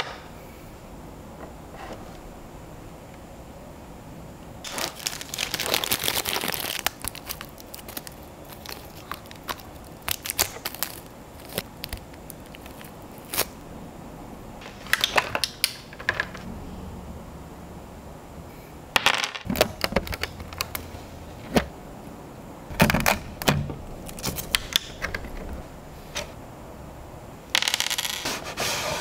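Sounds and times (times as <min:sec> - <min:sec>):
plastic bag crinkling: 0:04.6 - 0:13.6.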